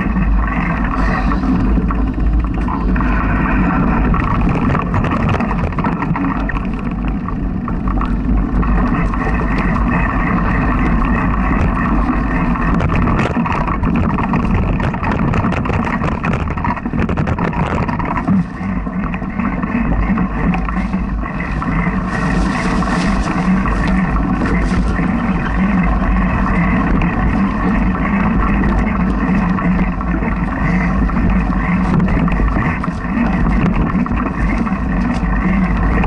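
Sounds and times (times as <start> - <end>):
wind buffeting microphone: 0.0 - 36.0.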